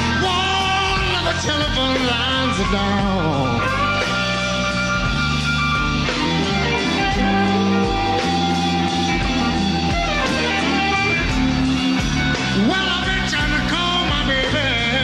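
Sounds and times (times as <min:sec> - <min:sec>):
bass: 0:00.0 - 0:15.0
drums: 0:00.0 - 0:15.0
electric guitar lead fills: 0:00.0 - 0:15.0.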